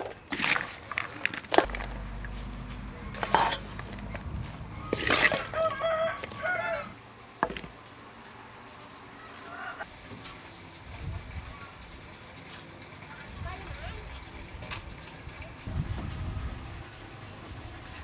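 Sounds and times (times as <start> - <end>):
low hum: 1.7 - 5.6.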